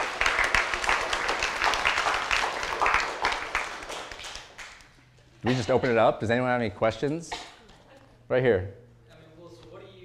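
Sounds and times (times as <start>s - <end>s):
audience applauding: 0.0s - 4.9s.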